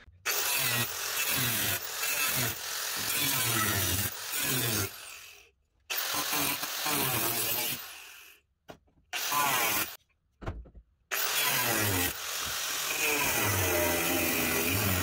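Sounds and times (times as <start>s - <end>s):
power tool cutting sheet metal: 0.0s - 8.3s, 9.2s - 10.0s, 11.1s - 15.0s.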